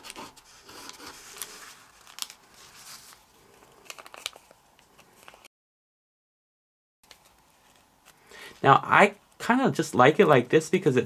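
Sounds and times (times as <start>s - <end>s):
paper creasing crackles: 0.0s - 5.5s
paper rustling and crinkling: 0.0s - 5.5s, 7.0s - 8.2s.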